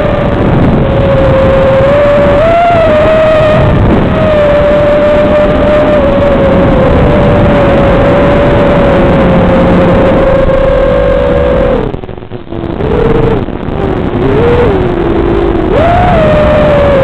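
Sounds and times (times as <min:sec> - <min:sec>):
drone motors whining: 0:00.0 - 0:17.0
rushing air: 0:00.0 - 0:17.0.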